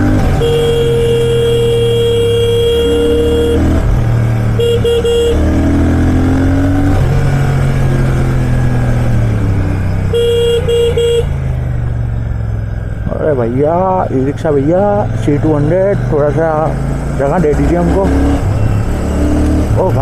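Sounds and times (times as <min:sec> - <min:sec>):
city traffic: 0:00.0 - 0:20.0
vehicle horn beeps: 0:00.2 - 0:03.8, 0:04.6 - 0:05.6, 0:10.1 - 0:11.4.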